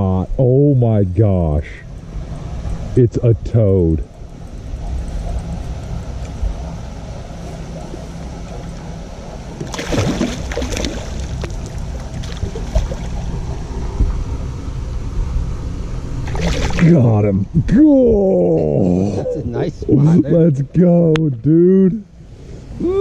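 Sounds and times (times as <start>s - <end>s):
steady low hum: 0.0s - 23.0s
fish splashing at surface: 9.6s - 13.2s, 16.2s - 16.9s.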